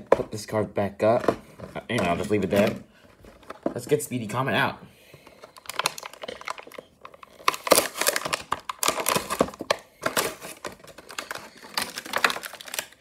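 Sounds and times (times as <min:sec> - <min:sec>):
plastic packaging crinkling: 0:05.2 - 0:13.0
cardboard tearing: 0:07.4 - 0:13.0.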